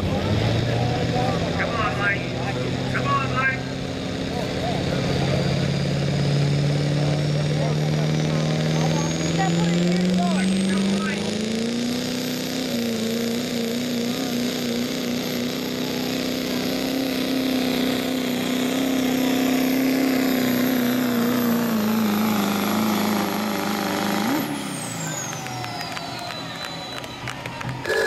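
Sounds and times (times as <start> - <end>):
diesel truck engine under load: 0.0 - 28.0
high turbo whistle: 25.2 - 28.0.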